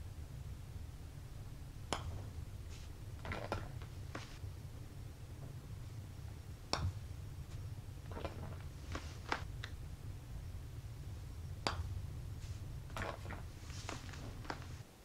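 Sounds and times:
putter striking golf ball: 1.9 - 4.3, 6.2 - 9.8, 11.5 - 12.0
ball clattering into cup: 3.2 - 4.2, 8.1 - 9.4, 12.9 - 14.7.

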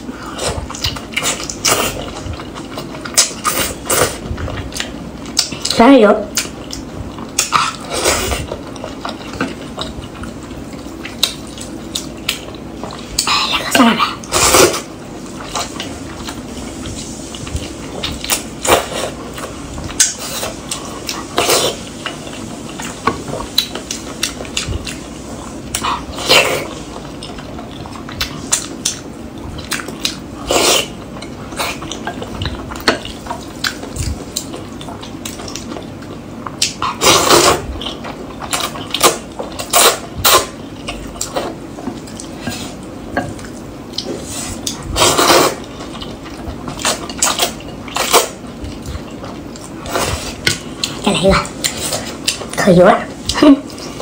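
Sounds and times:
wet slurps of noodles: 44.2 - 45.6.

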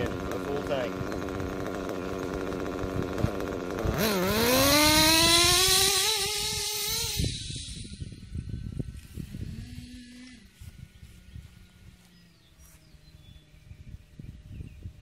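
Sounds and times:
model nitro engine revving: 0.0 - 11.3.

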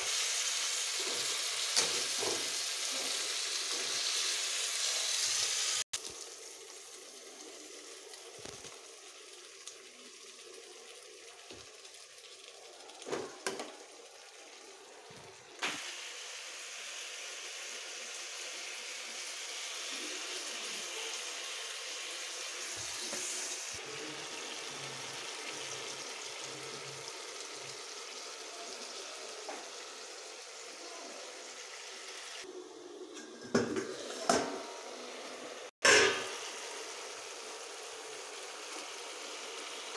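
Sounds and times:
vegetables sizzling in pan: 0.0 - 39.9
metal spoon knocking pan: 35.8 - 36.3.

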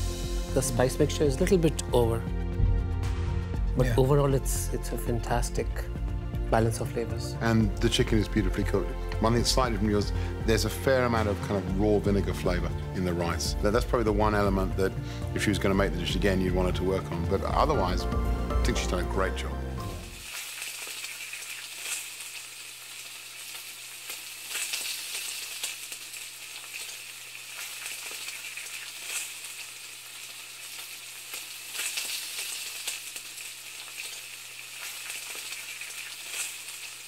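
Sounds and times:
food sizzling in a pan: 0.0 - 2.3, 19.8 - 37.0.

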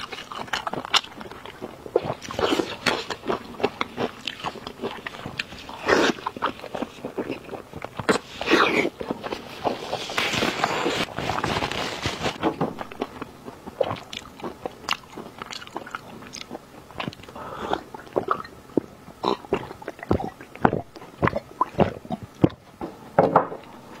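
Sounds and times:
chewing and mouth clicks: 0.0 - 11.4, 12.8 - 22.8
paper tissue rustling: 9.4 - 12.4.

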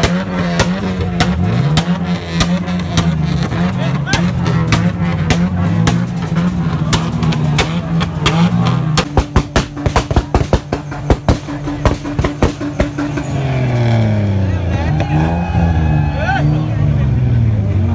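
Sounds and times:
exhaust pops and bangs: 0.0 - 13.9
car engine running: 0.0 - 17.9.

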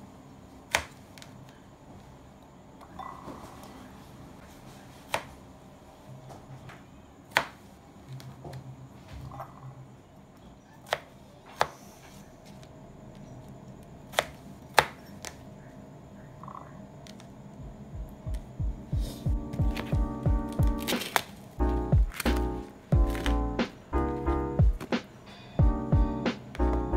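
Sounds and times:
knife striking cutting board: 22.1 - 23.4.

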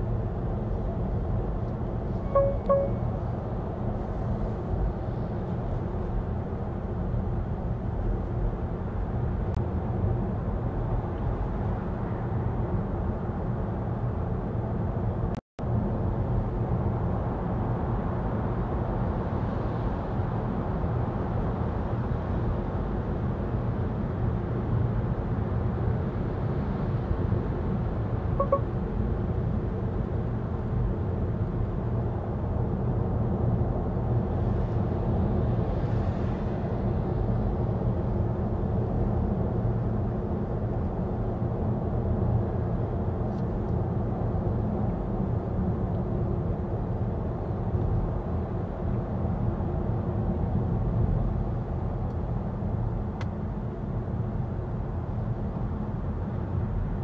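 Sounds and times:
short beep: 2.2 - 3.2, 28.4 - 28.7.

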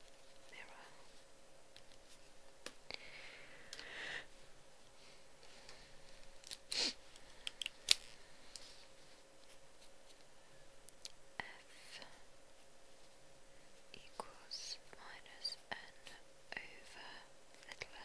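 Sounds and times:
soft rustle: 0.0 - 2.9, 7.0 - 10.7, 11.5 - 18.0.

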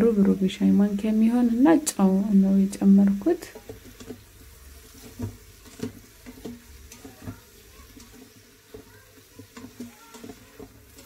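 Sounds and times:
faint food sizzle: 0.0 - 11.0
spatula scraping metal pot: 3.4 - 11.0.

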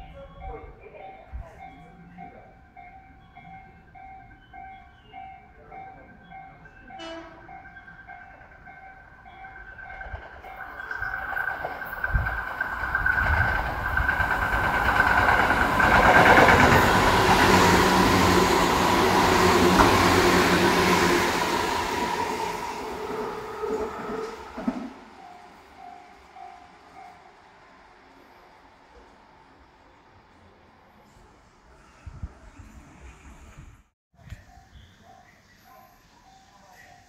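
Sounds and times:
electric train passing: 0.0 - 33.9
wheels on rails: 7.6 - 27.2.

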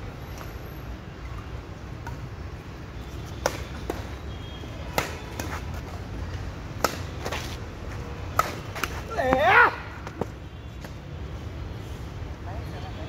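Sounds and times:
rackets hitting shuttlecock: 3.4 - 4.1, 4.9 - 5.6, 6.8 - 7.5, 8.3 - 11.0.

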